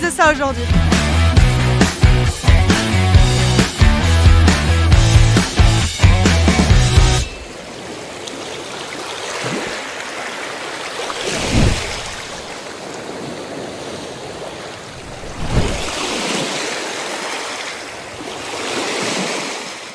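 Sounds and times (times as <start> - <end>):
surf-like rushing: 5.4 - 19.9.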